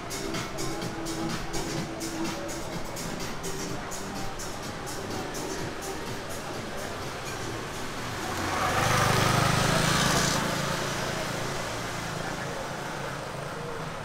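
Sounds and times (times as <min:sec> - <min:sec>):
motor scooter passing by: 0:06.5 - 0:14.0.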